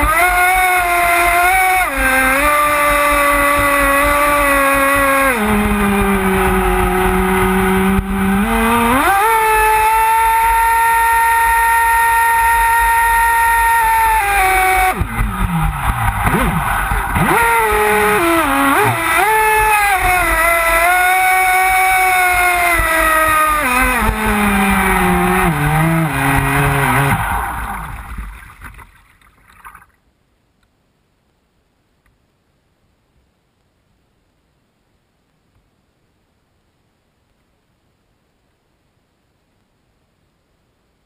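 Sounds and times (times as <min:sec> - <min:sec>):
electric motor whining: 0:00.0 - 0:28.3.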